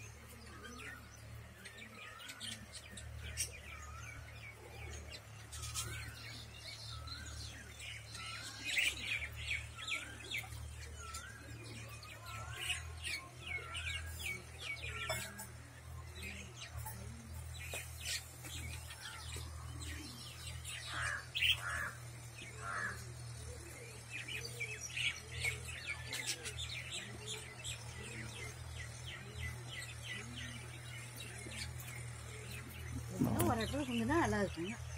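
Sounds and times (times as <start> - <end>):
budgerigars chattering and chirping: 0.0 - 34.9.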